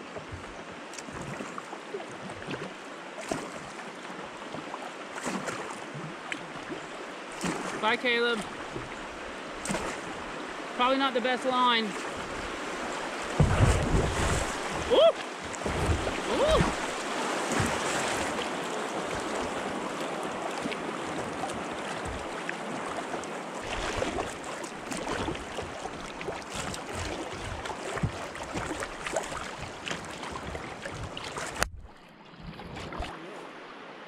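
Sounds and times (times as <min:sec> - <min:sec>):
river water rushing: 0:00.0 - 0:32.3
water splashes: 0:00.0 - 0:34.0
small knocks on kayak hull: 0:13.3 - 0:17.0.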